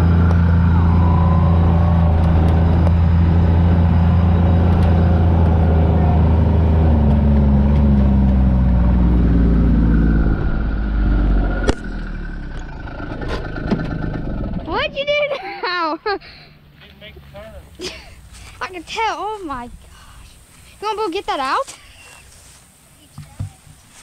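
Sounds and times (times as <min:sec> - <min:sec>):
utility vehicle engine running: 0:00.0 - 0:18.6.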